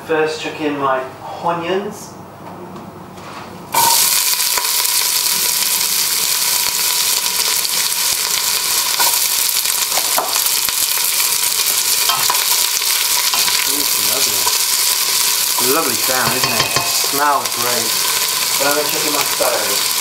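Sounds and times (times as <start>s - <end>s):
onions sizzling in pot: 3.7s - 20.0s
knocks in pot: 16.2s - 17.1s.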